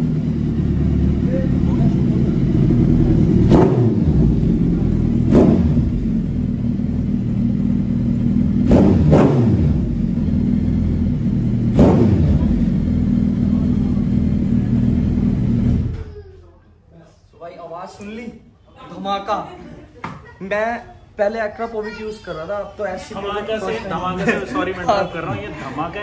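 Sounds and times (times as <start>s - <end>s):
motorcycle engine revving: 0.0s - 16.1s.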